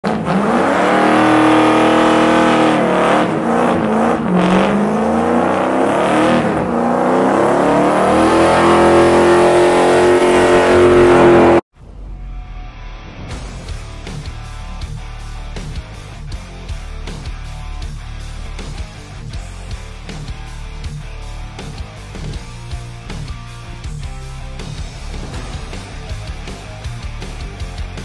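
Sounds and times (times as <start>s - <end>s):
pickup engine revving hard: 0.0s - 11.6s.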